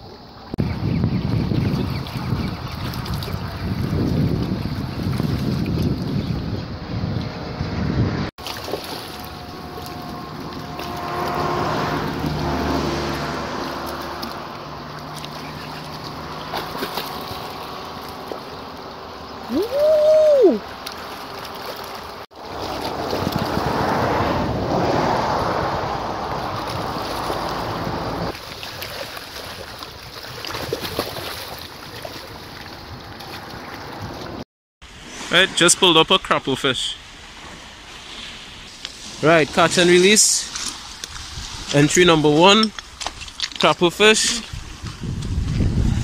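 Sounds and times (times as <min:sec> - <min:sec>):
wind buffeting microphone: 0:00.6 - 0:20.8, 0:22.4 - 0:28.4, 0:40.8 - 0:42.3, 0:44.3 - 0:46.0
water lapping against rocks: 0:01.7 - 0:06.5, 0:08.4 - 0:25.5, 0:26.2 - 0:34.4, 0:40.4 - 0:41.8, 0:42.7 - 0:46.0
whistle-like tone: 0:19.5 - 0:20.6.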